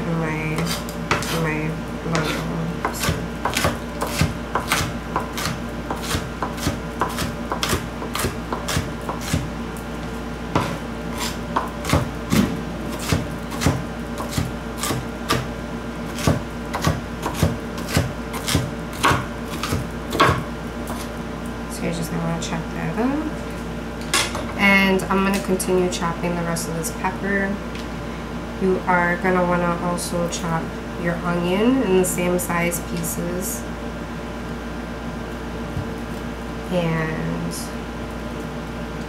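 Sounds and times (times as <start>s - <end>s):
knife chopping on cutting board: 2.1s - 9.4s, 10.6s - 15.5s, 16.2s - 21.1s.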